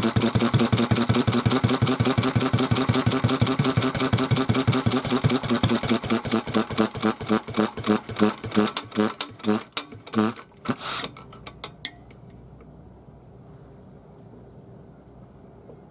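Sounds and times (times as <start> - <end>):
single-cylinder engine running down: 0.0 - 11.1.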